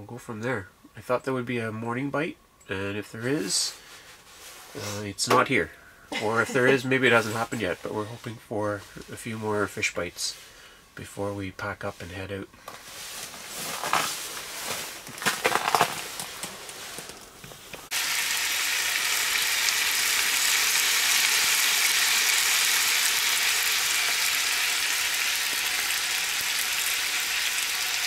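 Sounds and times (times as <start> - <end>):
handling knocks and rustling: 12.6 - 17.9
bacon sizzling in a frying pan: 17.9 - 28.0.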